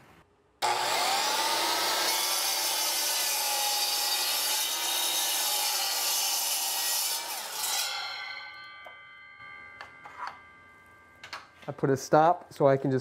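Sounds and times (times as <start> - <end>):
miter saw cutting: 0.6 - 8.6.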